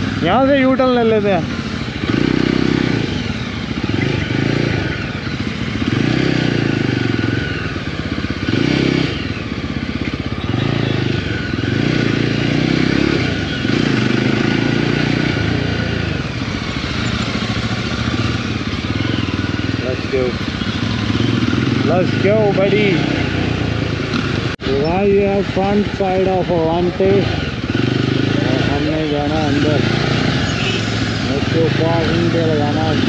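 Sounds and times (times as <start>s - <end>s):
motorcycle engine revving: 0.0s - 33.0s.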